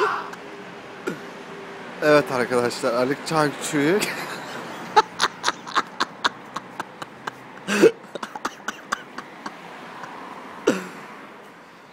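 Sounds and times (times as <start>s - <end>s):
man's gruff vocal sound: 7.6s - 9.1s.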